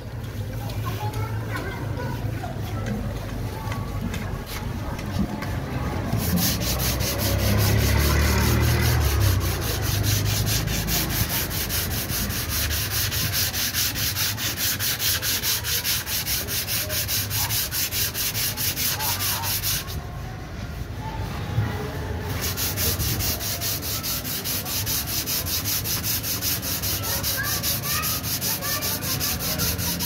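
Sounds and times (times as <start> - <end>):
sandpaper sanding back and forth: 4.4 - 20.0, 22.3 - 30.0.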